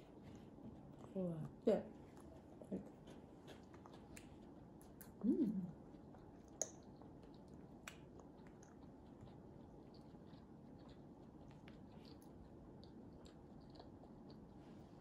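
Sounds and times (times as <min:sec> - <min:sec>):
short hummed voice: 0:05.2 - 0:05.8.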